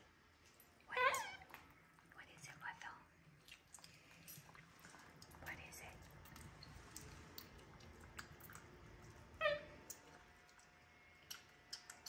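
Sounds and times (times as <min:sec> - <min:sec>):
monkey squeak: 0:01.0 - 0:01.4, 0:09.4 - 0:09.8.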